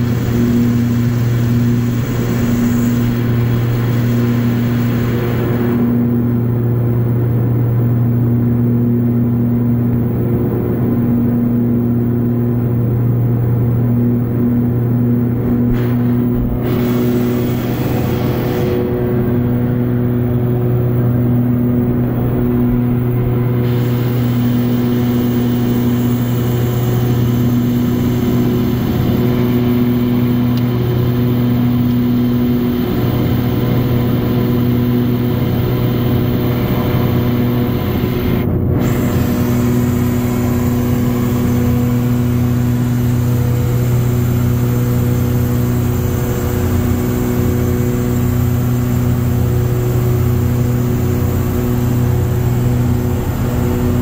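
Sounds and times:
rushing air hiss: 0:00.0 - 0:06.0, 0:15.4 - 0:29.9
airplane engine drone: 0:00.0 - 0:54.0.

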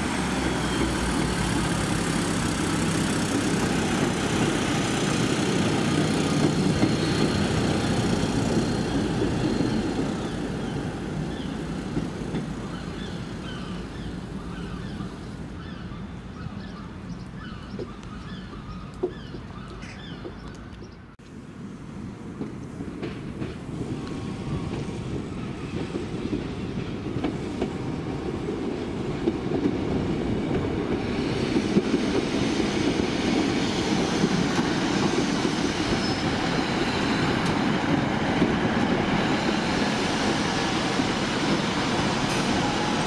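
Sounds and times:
diesel train moving off: 0:00.0 - 0:15.7, 0:21.3 - 0:43.0
birds chirping: 0:06.2 - 0:21.2.

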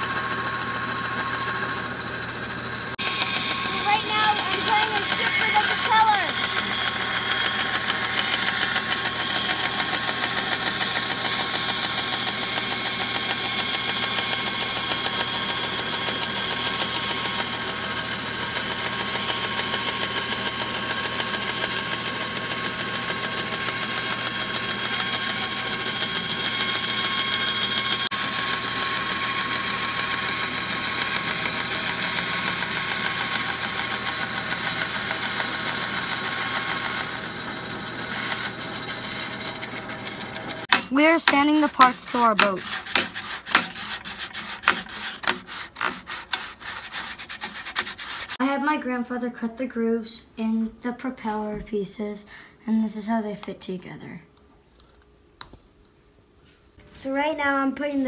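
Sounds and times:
band saw motor hum: 0:00.0 - 0:48.4
saw blade cutting wood: 0:00.0 - 0:48.4.

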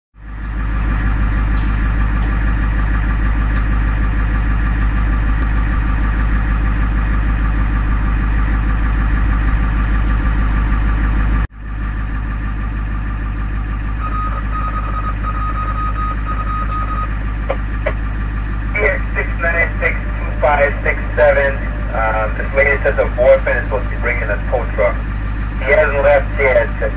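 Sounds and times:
ambulance engine idling: 0:00.2 - 0:26.9
steady high beep: 0:13.9 - 0:17.1.

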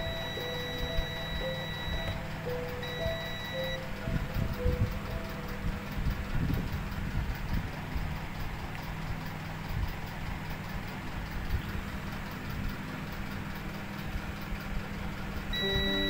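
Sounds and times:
music: 0:00.0 - 0:06.4, 0:15.6 - 0:16.0
low hum: 0:00.0 - 0:08.5, 0:15.5 - 0:16.0.

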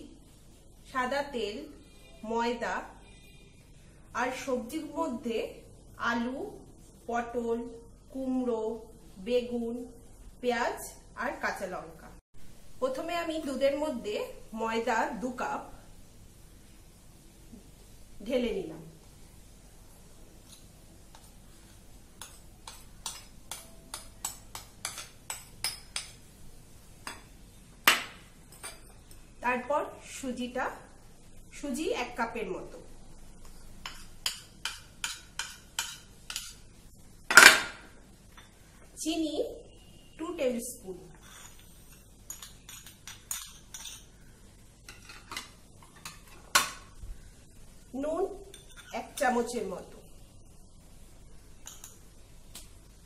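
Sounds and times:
spoon scraping bowls: 0:20.4 - 0:26.2, 0:33.4 - 0:36.6, 0:41.1 - 0:44.2, 0:48.5 - 0:49.3
metal spoon tapping bowl rim: 0:22.2 - 0:26.2.

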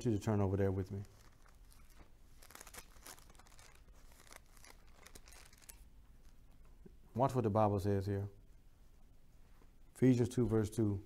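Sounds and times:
thin pages rustling: 0:00.7 - 0:06.4.

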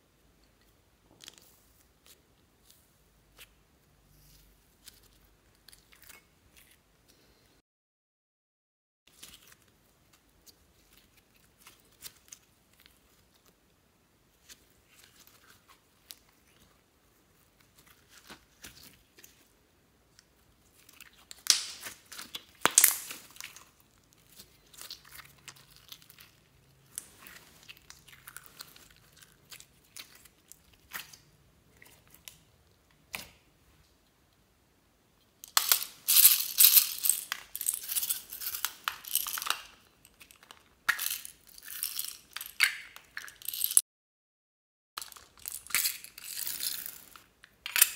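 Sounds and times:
slime crackling and squelching: 0:20.4 - 0:32.4.

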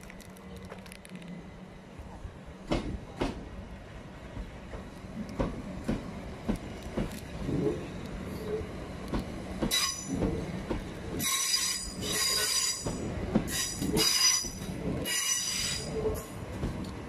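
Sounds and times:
train running past: 0:00.0 - 0:17.0
wheel squeal: 0:11.2 - 0:12.9.

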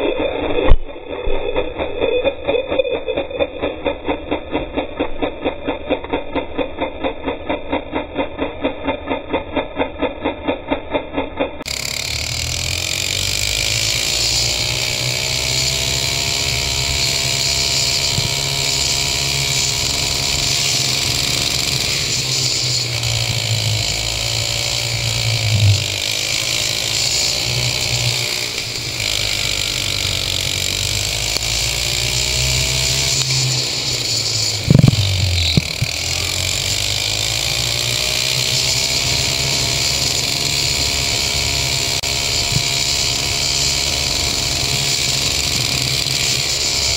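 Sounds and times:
go-kart engine revving: 0:00.0 - 0:46.9
loud thumps: 0:34.6 - 0:36.0.

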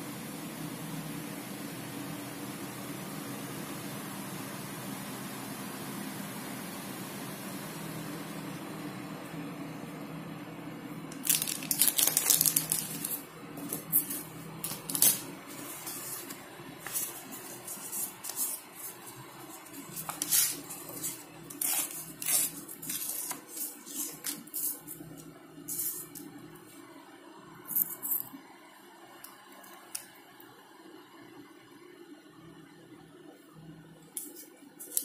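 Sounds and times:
paper tearing and rustling: 0:11.1 - 0:25.1.

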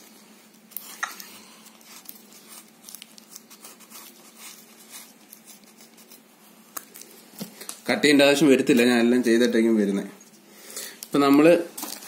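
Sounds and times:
paper wipe rustling on skin: 0:01.6 - 0:07.7.

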